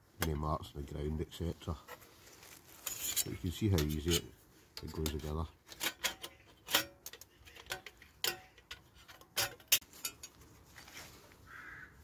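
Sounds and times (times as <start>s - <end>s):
metal panels clinking and knocking: 2.8s - 10.4s.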